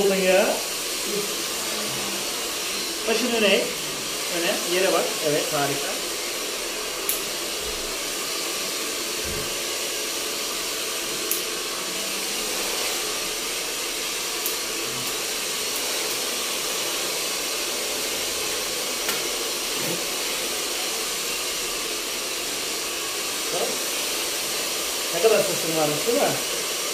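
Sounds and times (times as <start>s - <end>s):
hair dryer running: 0.0s - 26.9s
scissors snipping hair: 7.0s - 7.3s, 11.2s - 11.5s, 14.4s - 16.3s.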